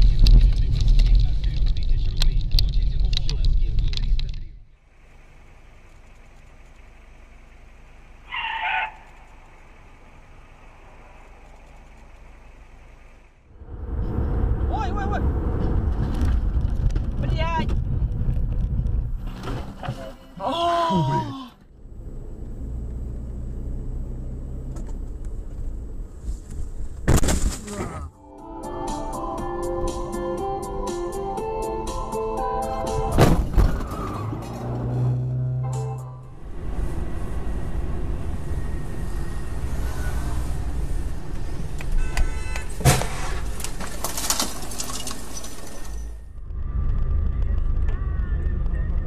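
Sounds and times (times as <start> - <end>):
car engine and road noise: 0.0 - 49.0
car crash: 26.9 - 28.1, 33.1 - 35.1, 42.7 - 47.8
sharp thump: 33.1 - 34.0.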